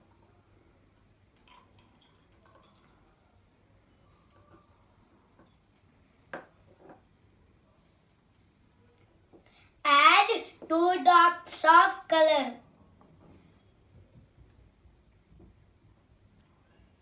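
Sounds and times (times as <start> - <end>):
water trickling into test tube: 1.3 - 3.3.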